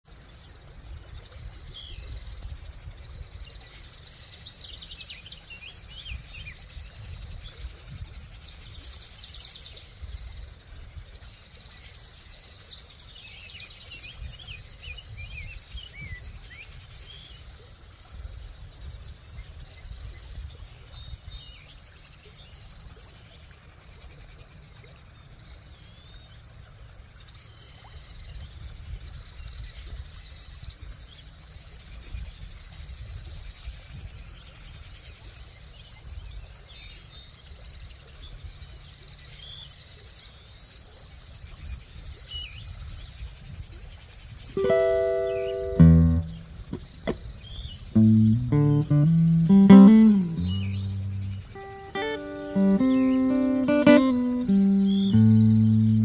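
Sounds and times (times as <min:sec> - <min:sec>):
birds chirping and trilling: 0:48.0 - 0:56.0.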